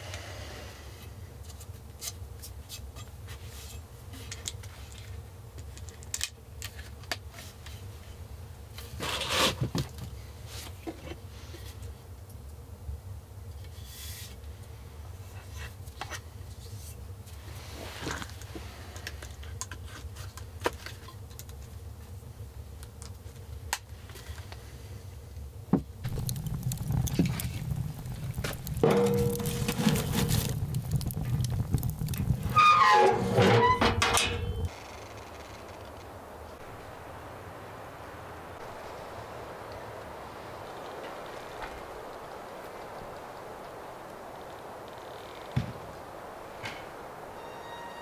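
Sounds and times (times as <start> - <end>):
wood fire crackling and popping: 17.2 - 24.6, 25.2 - 48.0.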